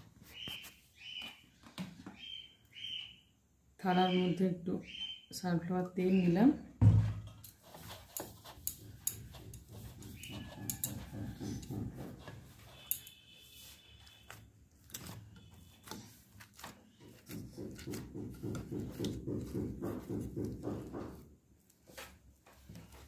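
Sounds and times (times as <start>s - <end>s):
hand rubbing oil on steel plate: 7.5s - 14.4s
hands squeezing sticky dough: 13.6s - 23.0s.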